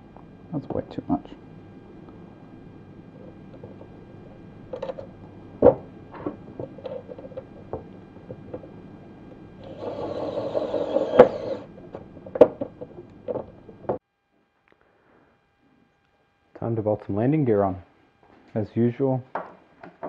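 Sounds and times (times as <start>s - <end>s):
electric screwdriver running: 9.6s - 11.7s.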